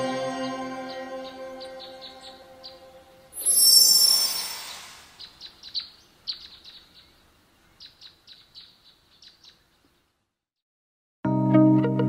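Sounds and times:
small birds chirping: 0.9 - 10.2.

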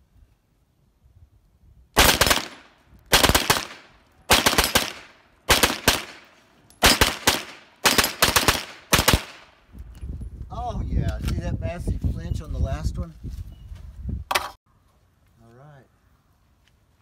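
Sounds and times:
gunshots in pairs: 2.0 - 9.5.

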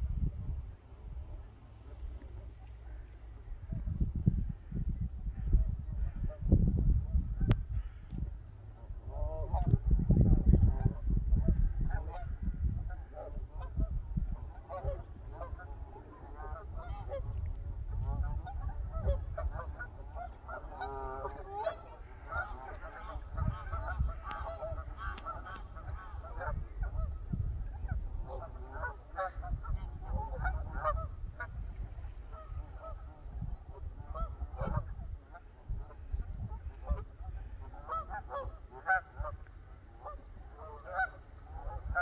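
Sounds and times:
geese honking: 12.9 - 17.3, 17.9 - 27.2, 27.8 - 42.0.

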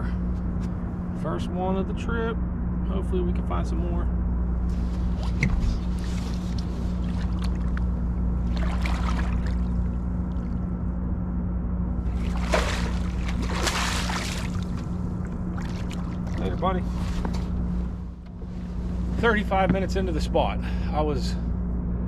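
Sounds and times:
steady low hum: 0.0 - 22.0
water splashing: 5.1 - 10.6, 12.0 - 17.1.

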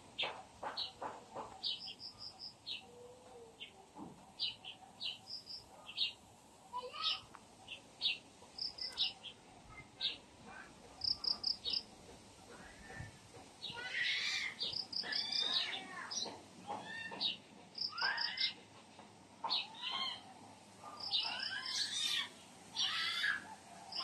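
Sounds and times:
birds chirping and singing: 6.9 - 18.7, 19.4 - 24.0.

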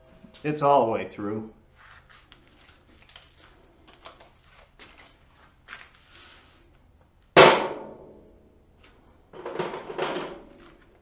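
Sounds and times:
low steady hum: 0.0 - 11.0
handling clicks and rustles: 2.0 - 6.0.

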